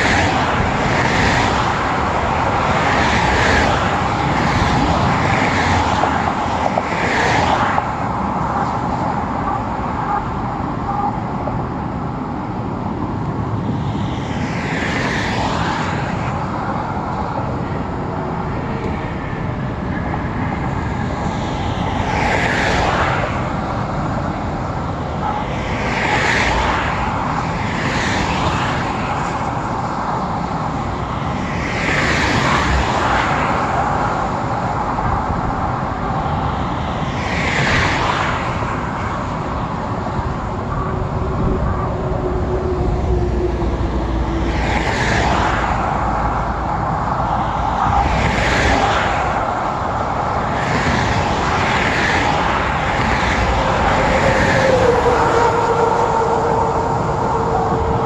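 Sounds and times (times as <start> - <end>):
cars and trucks passing: 0.0 - 58.0
steady roar of traffic: 0.0 - 58.0.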